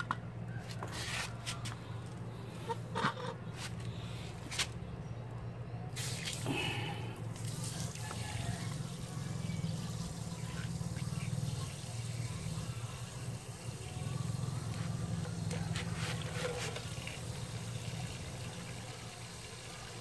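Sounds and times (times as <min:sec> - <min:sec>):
low electric hum: 0:00.0 - 0:19.8
water running from hose: 0:06.0 - 0:20.0.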